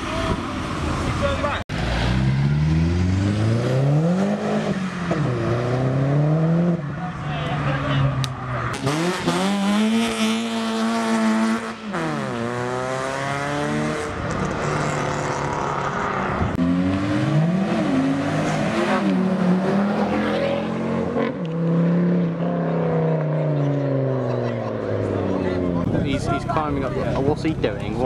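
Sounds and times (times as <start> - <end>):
car engine revving hard: 1.8 - 6.8, 8.7 - 15.6.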